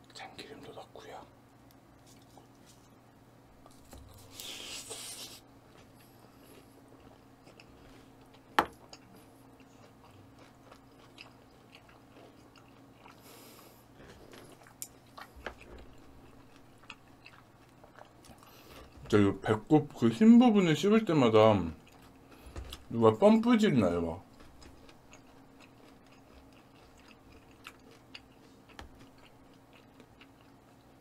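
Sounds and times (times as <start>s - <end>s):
person chewing raw fish: 3.6s - 19.0s, 21.8s - 22.9s, 24.2s - 31.0s.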